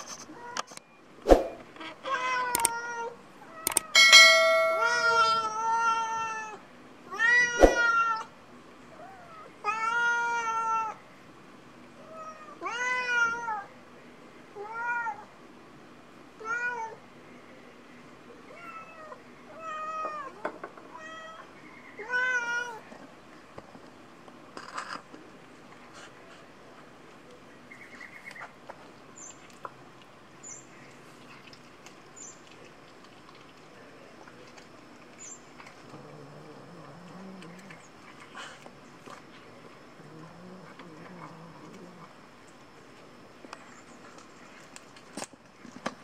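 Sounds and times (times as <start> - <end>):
cats meowing: 2.0 - 8.3
sharp click: 3.7 - 3.9.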